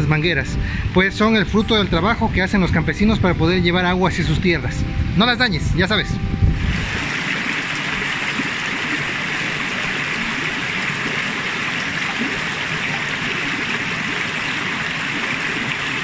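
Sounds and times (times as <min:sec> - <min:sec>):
stream running over rocks: 0:06.6 - 0:16.0.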